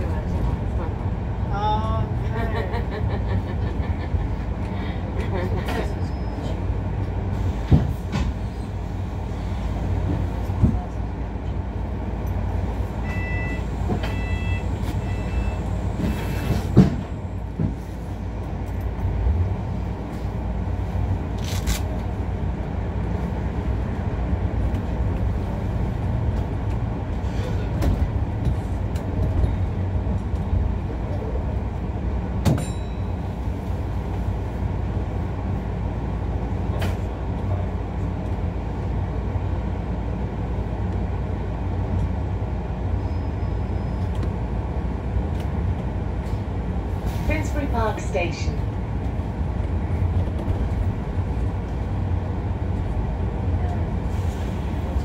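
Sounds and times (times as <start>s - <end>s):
bus drivetrain and road rumble: 0.0s - 55.0s
short beeps: 13.0s - 15.7s.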